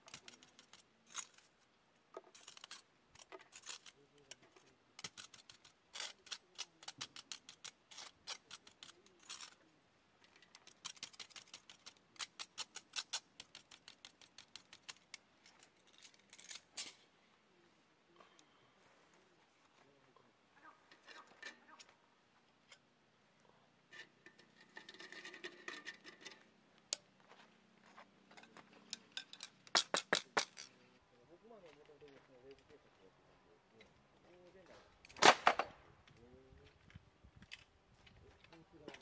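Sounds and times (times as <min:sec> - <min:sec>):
metal tongs clicking and scraping: 0:00.0 - 0:01.4, 0:02.3 - 0:09.6, 0:10.4 - 0:17.0, 0:28.8 - 0:30.7.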